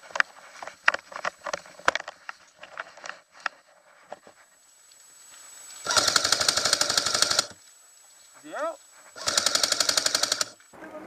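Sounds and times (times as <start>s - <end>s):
airsoft gun firing full auto: 5.9s - 7.6s, 9.2s - 10.6s.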